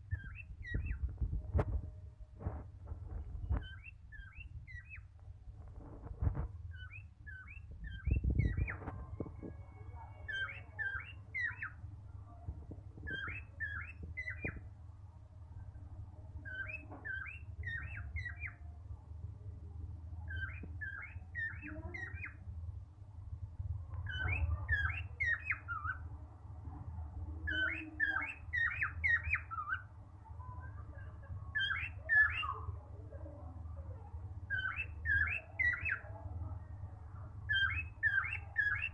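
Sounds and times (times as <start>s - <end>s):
steady low rumble: 0.0s - 27.6s
cockatiel chirping: 0.1s - 1.3s, 3.1s - 5.1s, 6.2s - 11.8s, 13.0s - 14.6s, 16.4s - 18.6s, 20.3s - 22.4s, 24.0s - 26.0s, 27.4s - 29.9s, 31.0s - 32.7s, 34.5s - 36.1s, 37.5s - 38.9s.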